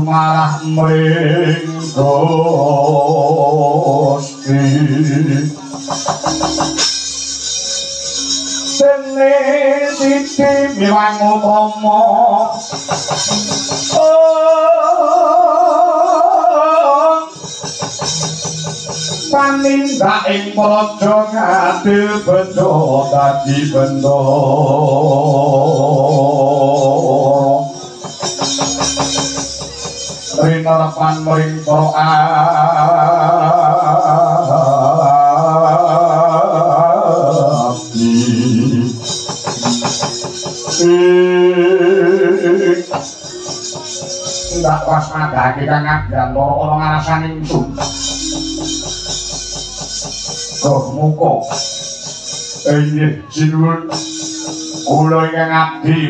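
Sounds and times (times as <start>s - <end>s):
gamelan music: 0.0s - 56.0s
quick struck percussion beats: 0.0s - 56.0s
singer holding long vibrato note: 18.2s - 56.0s.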